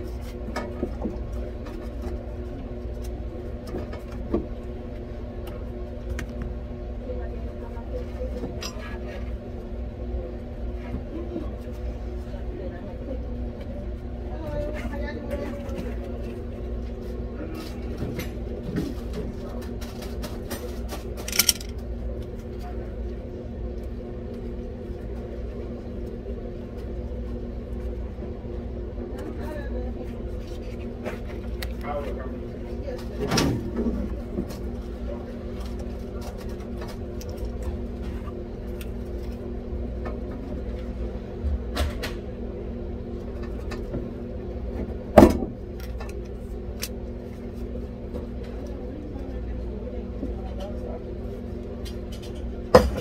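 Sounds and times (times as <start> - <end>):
steady machine hum: 0.0 - 53.0
machine hum: 20.8 - 30.6
hand tools clicking and knocking: 21.2 - 21.7.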